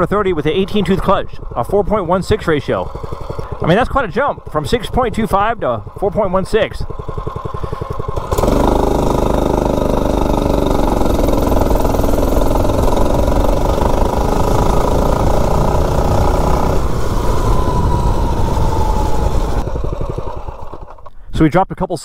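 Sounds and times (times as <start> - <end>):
mini bike engine accelerating: 0.0 - 21.1
whine falling in pitch: 12.3 - 19.9.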